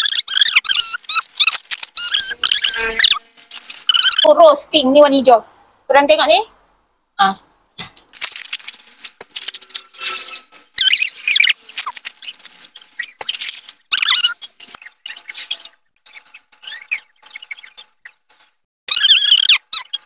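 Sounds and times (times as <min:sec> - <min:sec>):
squeaky rubbing: 0:00.0 - 0:04.3, 0:08.2 - 0:20.0
plastic sachets crinkling and tearing: 0:00.3 - 0:04.3, 0:08.1 - 0:14.2
utensils stirring in metal wok: 0:00.9 - 0:04.3, 0:08.1 - 0:18.6.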